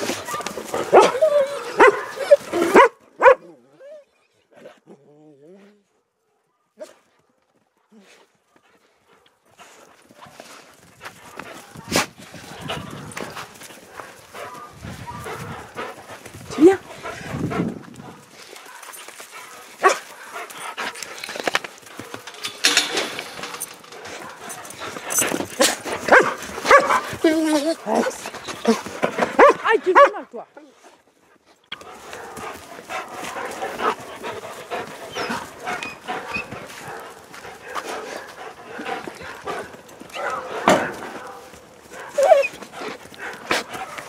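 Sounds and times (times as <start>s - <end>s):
dogs barking and whining: 0.0s - 7.0s, 11.4s - 30.2s, 31.7s - 44.0s
dog barking: 0.3s - 3.5s, 6.2s - 7.0s, 19.7s - 20.4s, 25.6s - 27.0s, 29.2s - 30.2s, 40.1s - 42.5s.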